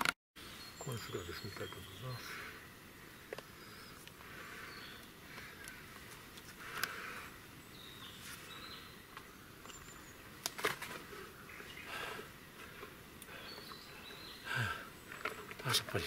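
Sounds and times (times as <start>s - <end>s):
high bird chirps: 0.4s - 2.6s
faint forest ambience: 0.4s - 16.0s.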